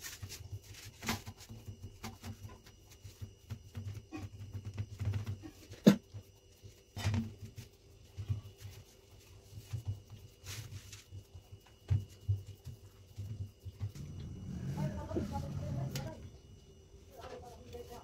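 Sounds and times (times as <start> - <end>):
hands patting soft mixture: 0.0 - 16.5.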